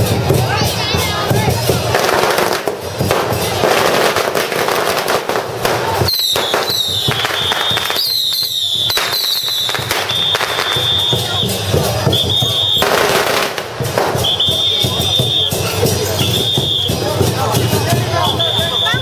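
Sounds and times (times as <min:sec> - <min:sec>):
firecrackers crackling: 0:00.0 - 0:19.0
high steady whistle: 0:06.1 - 0:12.9, 0:14.2 - 0:17.0, 0:18.2 - 0:19.0.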